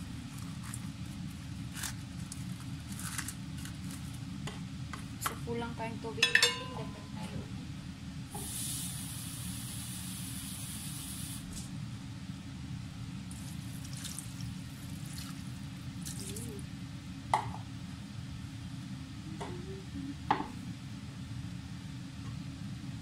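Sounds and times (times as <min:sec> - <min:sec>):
water pouring and splashing: 0:13.3 - 0:16.6.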